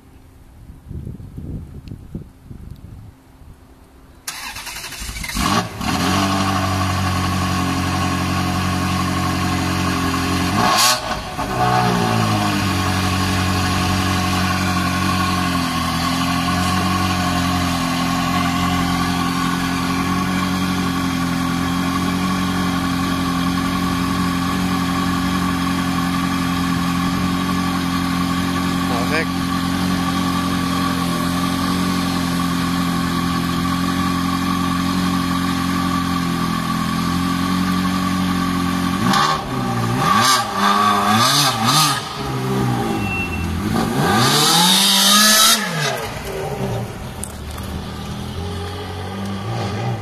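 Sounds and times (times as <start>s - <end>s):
car engine cranking and idling: 4.2s - 50.0s
engine throttle blip: 42.8s - 44.3s.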